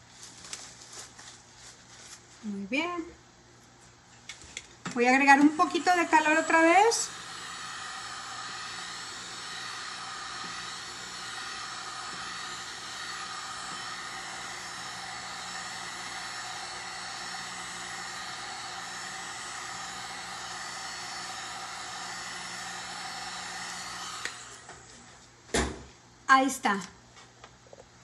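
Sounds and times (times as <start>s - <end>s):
heat gun blowing hiss: 5.0s - 25.0s.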